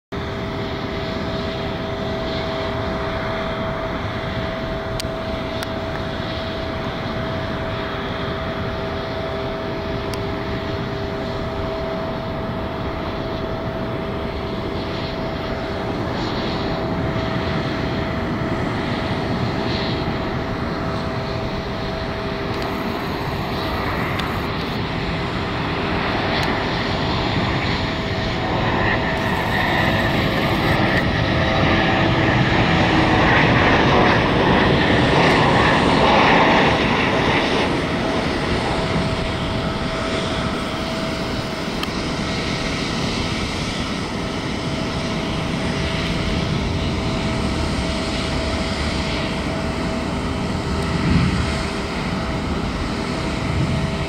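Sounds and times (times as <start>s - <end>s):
jet engines flying past: 0.1s - 54.0s
steady engine whine: 0.1s - 54.0s.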